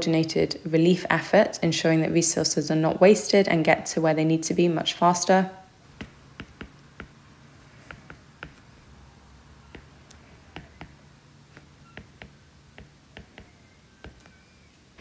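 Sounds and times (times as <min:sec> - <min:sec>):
faint low hum: 0:00.0 - 0:15.0
stylus tapping on glass screen: 0:06.0 - 0:07.2, 0:07.8 - 0:08.7, 0:09.7 - 0:14.4.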